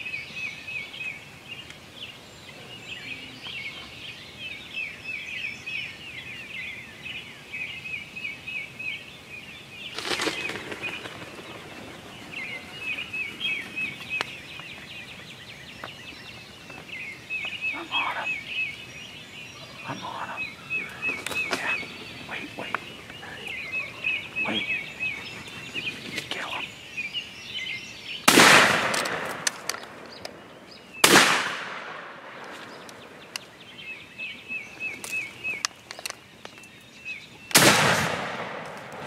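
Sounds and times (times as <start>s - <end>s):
high rapid chirping calls: 17.2s - 26.8s.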